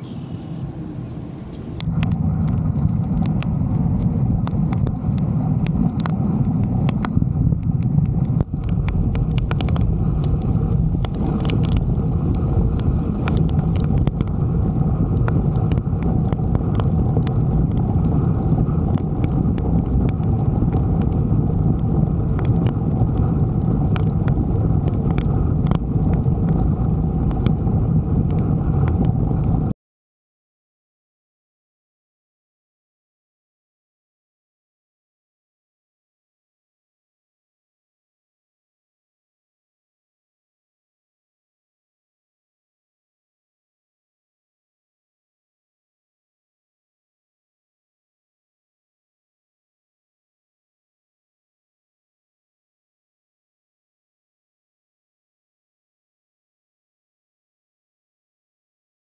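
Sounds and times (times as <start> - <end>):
wind rush and road noise: 0.0 - 29.8.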